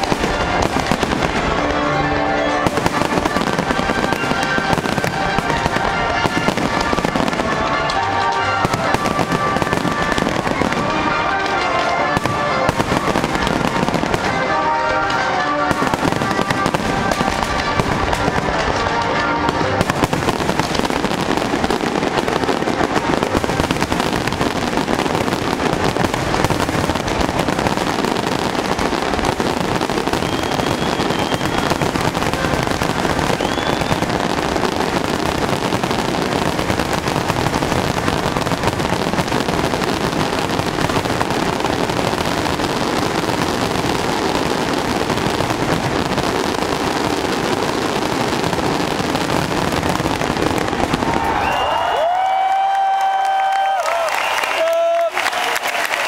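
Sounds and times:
fireworks bursts and crackling: 0:00.0 - 0:56.0
faint firework whistles: 0:30.0 - 0:32.2, 0:33.2 - 0:34.2, 0:51.1 - 0:52.0.

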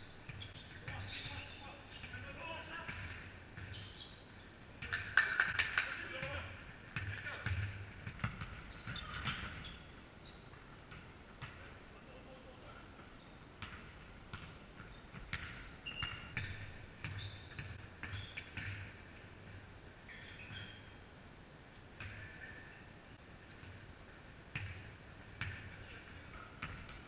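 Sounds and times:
sneakers squeaking: 0:00.0 - 0:05.0, 0:07.0 - 0:11.7, 0:12.9 - 0:19.0, 0:20.1 - 0:21.1.

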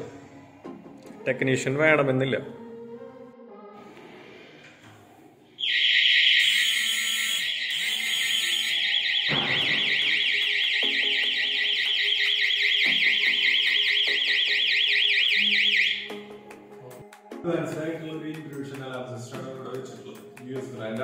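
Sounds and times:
warbling alarm siren: 0:05.6 - 0:16.4.

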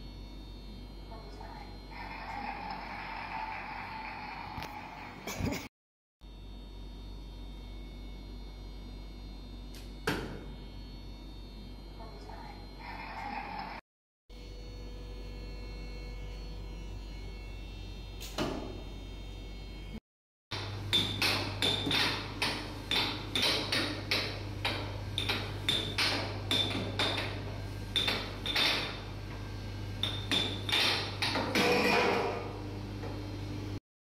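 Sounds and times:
steady low hum: 0:00.0 - 0:13.8, 0:20.6 - 0:33.8.

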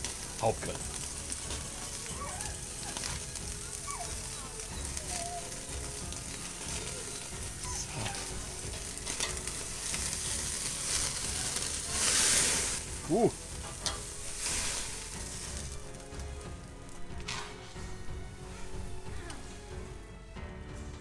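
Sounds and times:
meat sizzling on a grill: 0:00.0 - 0:20.2
flames flaring: 0:00.0 - 0:20.3
fat dripping and burning: 0:00.0 - 0:20.5.

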